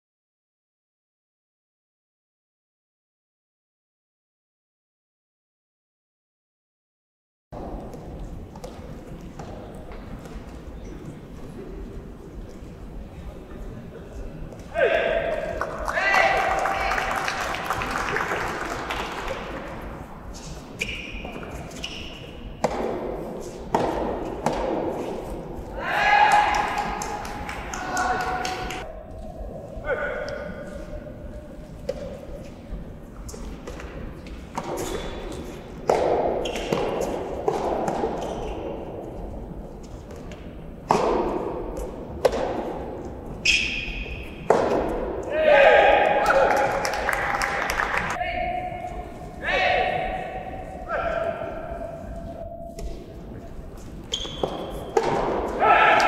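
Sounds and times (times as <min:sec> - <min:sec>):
racket hitting tennis ball: 0:20.3 - 0:28.8, 0:31.8 - 0:32.4, 0:33.3 - 0:38.9, 0:39.8 - 0:45.3, 0:54.2 - 0:56.0
tennis ball struck by rackets: 0:22.6 - 0:25.2, 0:33.6 - 0:38.4, 0:40.9 - 0:42.8, 0:44.4 - 0:45.2.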